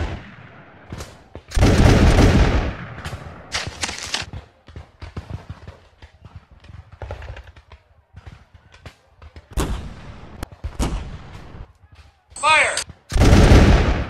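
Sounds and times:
heavy cannon blasts: 0.0s - 3.5s, 13.1s - 14.0s
musket gunfire crackle: 0.0s - 4.3s, 12.7s - 14.0s.

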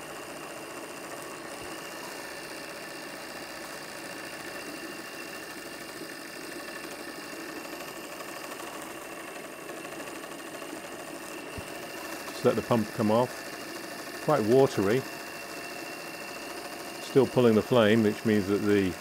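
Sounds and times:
model steam engine chattering: 11.8s - 19.0s.

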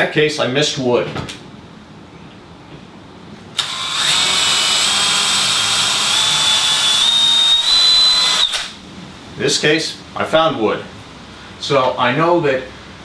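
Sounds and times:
cordless drill whining: 3.6s - 8.8s.

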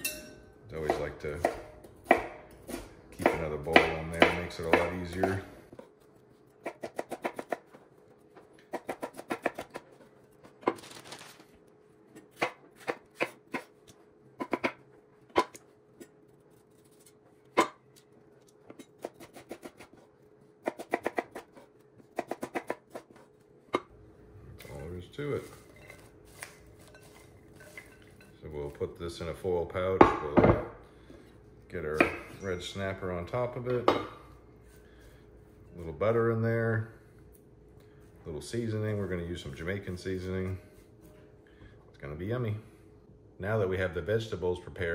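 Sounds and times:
vegetables rustling in bowl: 10.5s - 11.6s, 24.6s - 28.8s.

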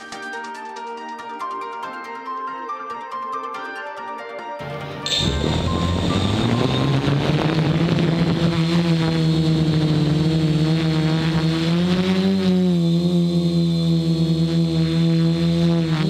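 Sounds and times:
drone propellers buzzing: 4.7s - 16.0s.

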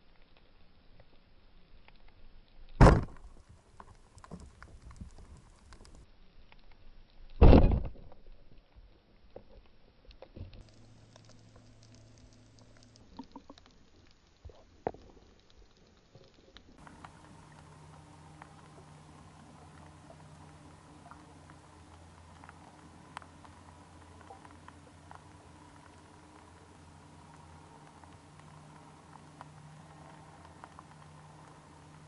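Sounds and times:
faint underwater clicks: 0.0s - 7.4s, 8.6s - 32.0s
low steady hum: 0.0s - 32.0s
heavy underwater thud: 2.8s - 3.2s.

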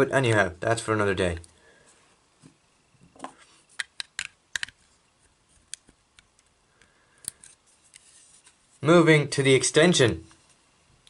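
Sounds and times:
plastic toy clicks: 3.8s - 4.8s.

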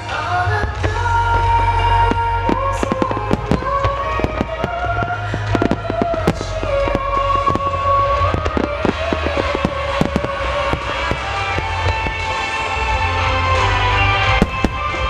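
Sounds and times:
fireworks bangs: 0.0s - 15.0s
music with slow melody: 0.0s - 15.0s.

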